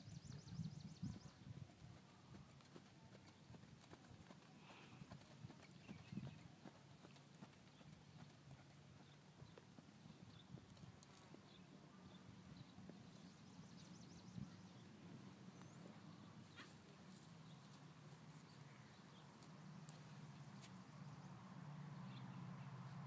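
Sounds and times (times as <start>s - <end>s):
muffled hoofbeats on sand: 1.3s - 14.0s.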